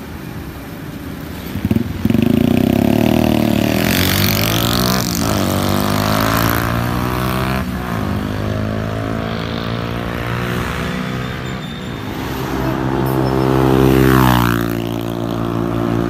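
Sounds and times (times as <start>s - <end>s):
motorcycle engine pulling away: 1.6s - 7.6s.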